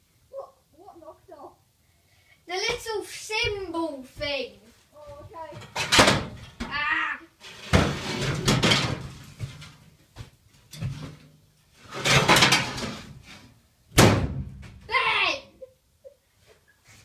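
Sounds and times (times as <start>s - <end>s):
metal grille scraping against wall: 7.4s - 9.8s, 10.7s - 13.5s.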